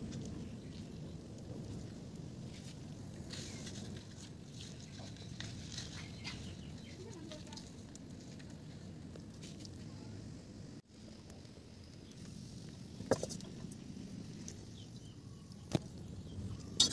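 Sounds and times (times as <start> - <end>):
leaf crackling: 0.0 - 10.3.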